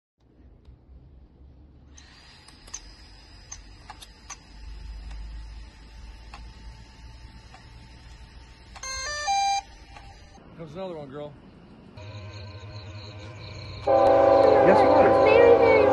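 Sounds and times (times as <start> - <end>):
faint high whine: 1.9 - 15.9
electronic beeps: 8.8 - 10.4.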